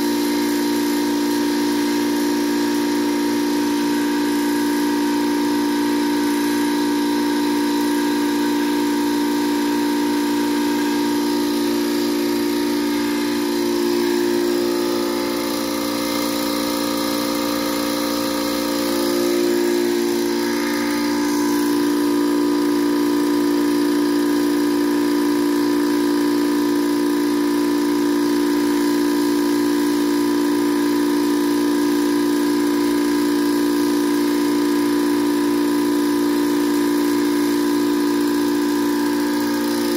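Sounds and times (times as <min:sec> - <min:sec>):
electric air compressor humming: 0:00.0 - 0:39.9.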